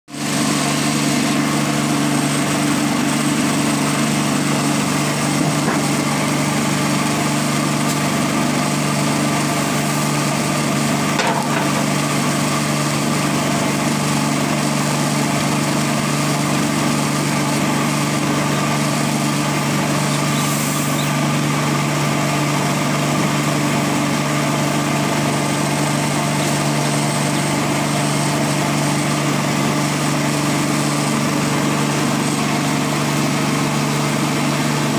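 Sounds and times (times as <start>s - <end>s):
electric motor humming: 0.2s - 34.9s.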